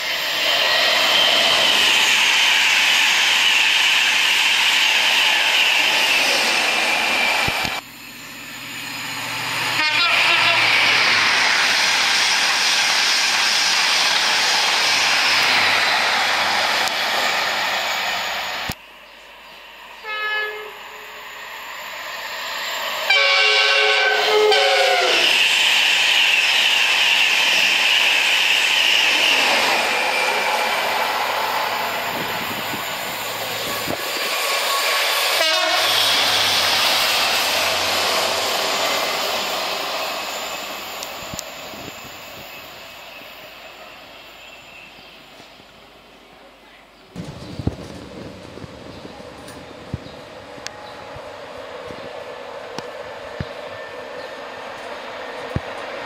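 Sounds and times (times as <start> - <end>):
train passing at speed: 0.0 - 56.0
train horn: 9.7 - 10.7, 20.0 - 21.1, 23.0 - 25.4, 35.3 - 36.6
locomotives rumbling past: 47.1 - 56.0.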